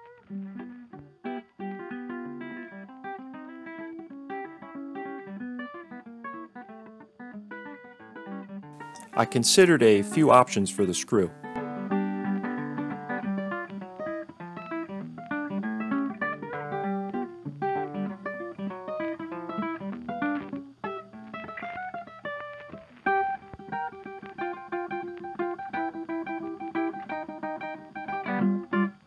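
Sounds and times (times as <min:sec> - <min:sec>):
acoustic guitar rag: 0:08.8 - 0:20.6.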